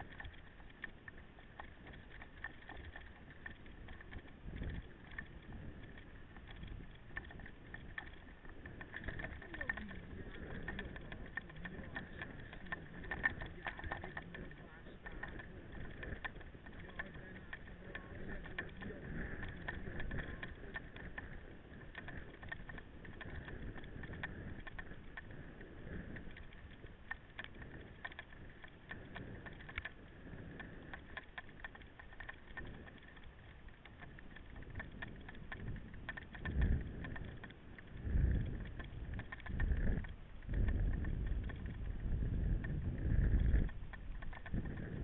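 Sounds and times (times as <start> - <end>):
bike clicks and rattles: 0.0 - 45.0
tyre and wind noise: 0.0 - 45.0.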